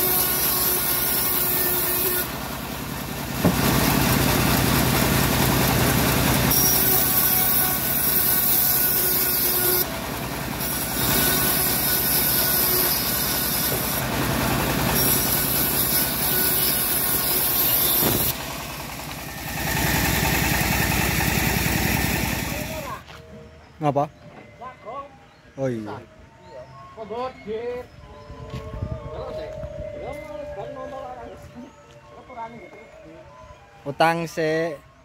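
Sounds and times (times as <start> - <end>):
bandsaw blade cutting wood: 0.0 - 2.3, 6.5 - 9.9, 10.6 - 14.1, 14.8 - 18.4
engine drive throbbing: 2.2 - 23.0.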